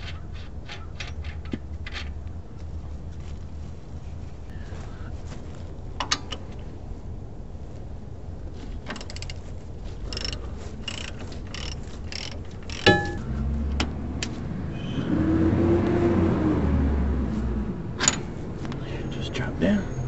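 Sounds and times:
wrench ratchet clicking: 10.1s - 13.2s
loud metal clink: 12.7s - 13.3s.

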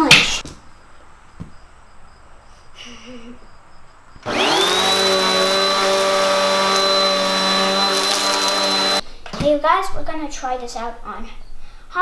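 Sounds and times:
vacuum cleaner motor whine: 4.2s - 9.0s.

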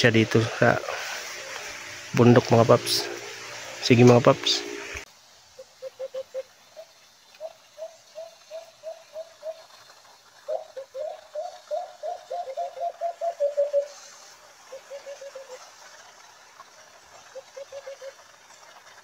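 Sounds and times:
dove cooing: 5.8s - 6.4s, 7.4s - 9.8s, 10.5s - 14.1s, 14.7s - 15.6s, 17.3s - 18.3s.

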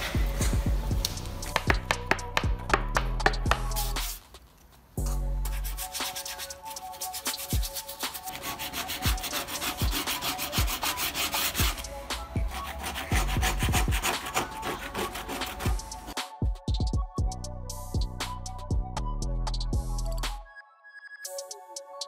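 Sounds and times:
background music with steady beat: 0.0s - 4.3s, 5.0s - 22.0s
wet scrubbing and scraping paint: 5.5s - 16.2s.

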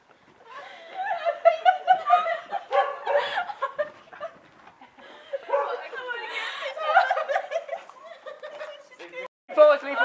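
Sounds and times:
woman laughing heartily: 0.5s - 5.6s, 6.2s - 8.8s.

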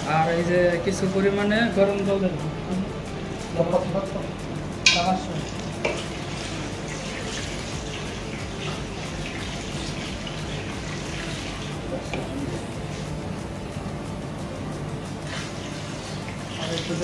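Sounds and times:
water pouring into pot: 4.8s - 13.4s, 15.2s - 17.0s.

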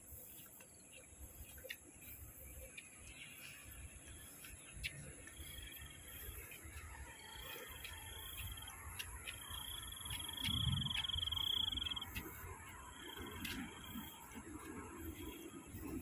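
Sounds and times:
insect trilling: 9.4s - 12.2s.

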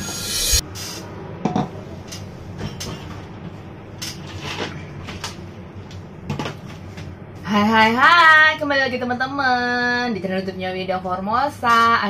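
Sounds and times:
drum-heavy music: 0.0s - 0.6s.

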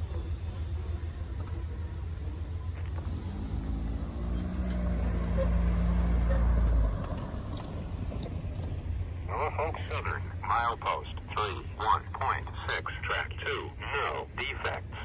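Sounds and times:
car passing: 1.0s - 12.4s.

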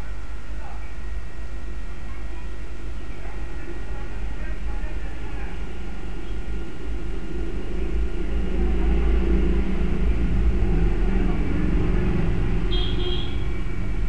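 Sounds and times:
constant hum: 0.0s - 14.0s
low rumble: 6.4s - 14.0s.

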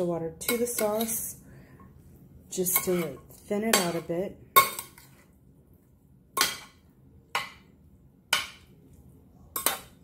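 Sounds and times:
spoon knocking against pan and dish: 6.4s - 7.7s, 8.3s - 8.7s.

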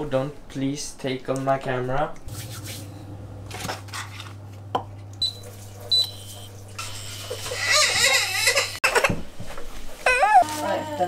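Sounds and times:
low steady hum: 2.0s - 7.3s.

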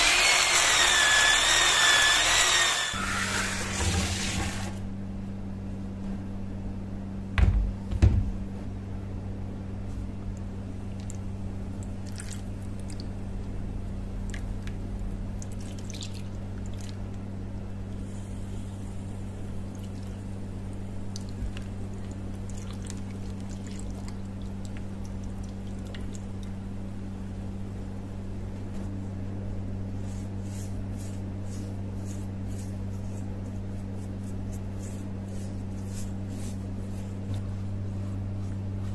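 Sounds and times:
knocks on plastic tray: 7.4s - 8.3s
paintbrush dabbing: 30.0s - 38.9s.

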